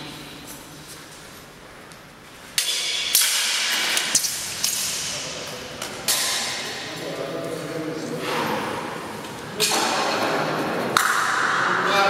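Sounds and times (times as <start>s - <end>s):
swords and armour clattering: 2.6s - 6.8s.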